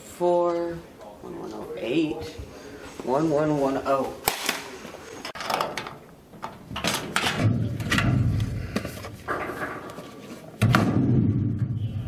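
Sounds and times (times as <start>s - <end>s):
locker clattering: 5.3s - 10.1s
loud bang: 10.6s - 12.0s.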